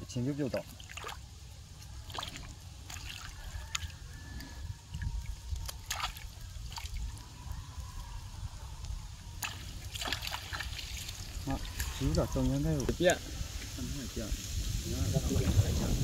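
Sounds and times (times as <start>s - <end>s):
water trickling and dripping: 0.0s - 14.3s
small sharp splashes: 0.5s - 4.0s, 4.9s - 7.2s, 9.4s - 12.6s.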